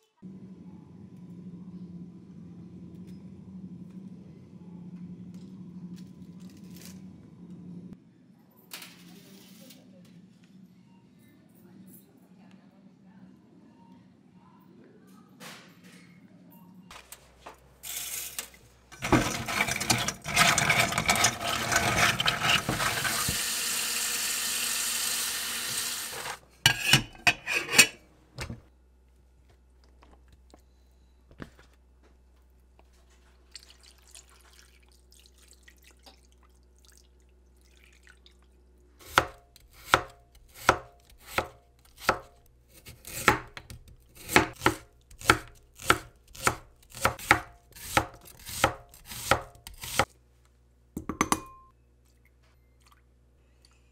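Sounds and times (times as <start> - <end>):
tap water running into a pot: 19.0 - 26.4
knife chopping on wooden board: 39.1 - 50.1.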